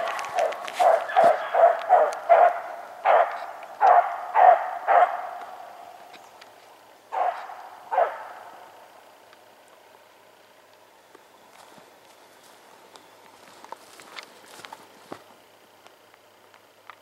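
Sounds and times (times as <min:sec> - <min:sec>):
beagles barking: 0:00.0 - 0:06.4, 0:07.0 - 0:09.2.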